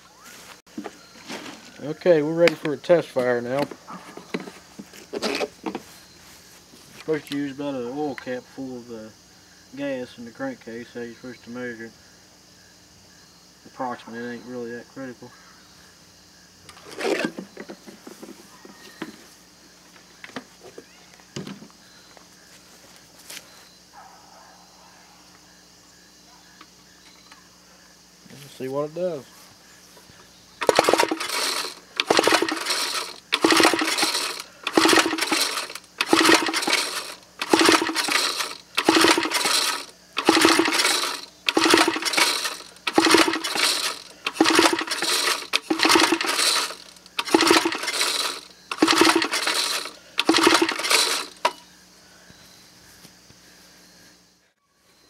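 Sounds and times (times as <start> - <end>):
engine recoil starter pulls: 5.1 - 5.8, 16.7 - 17.6, 30.6 - 51.6.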